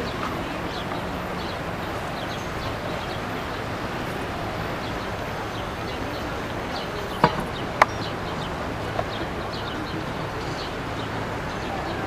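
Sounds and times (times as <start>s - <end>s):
outdoor ambient noise: 0.0s - 12.0s
small birds chirping: 0.0s - 12.0s
sharp knock: 7.2s - 7.6s.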